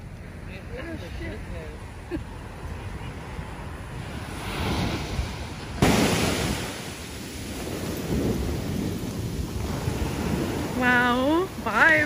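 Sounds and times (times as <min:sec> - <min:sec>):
wind buffeting microphone: 0:00.0 - 0:12.0
ocean surf breaking: 0:00.3 - 0:12.0.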